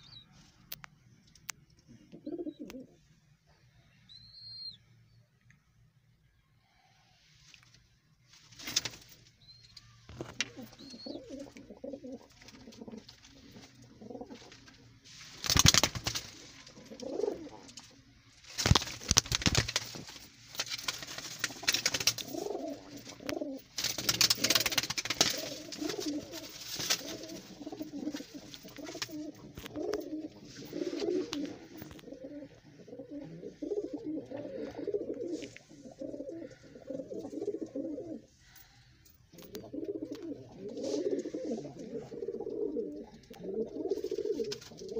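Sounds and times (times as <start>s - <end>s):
pigeons cooing: 2.1s - 3.0s, 10.4s - 14.6s, 16.7s - 17.8s, 21.9s - 38.6s, 39.3s - 44.9s
wings flapping: 8.4s - 9.3s, 12.3s - 17.6s, 18.4s - 30.1s.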